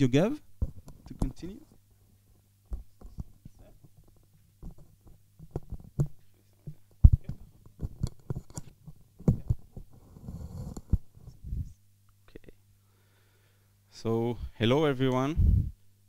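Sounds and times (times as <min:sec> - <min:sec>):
low electrical hum: 0:00.0 - 0:16.0
microphone handling thumps and rustles: 0:00.5 - 0:01.8, 0:02.6 - 0:11.8, 0:15.4 - 0:15.8.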